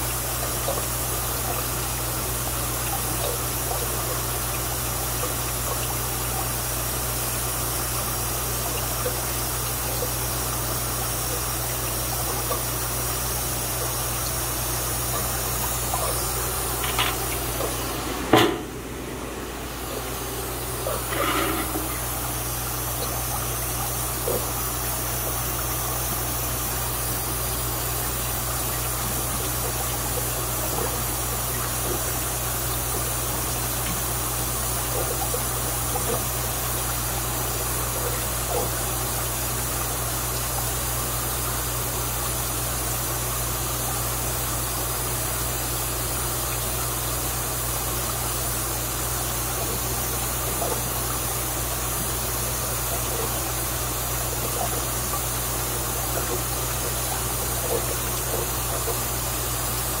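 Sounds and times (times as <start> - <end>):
low equipment hum: 0.0 - 39.3
water rushing from pipe: 0.0 - 60.0.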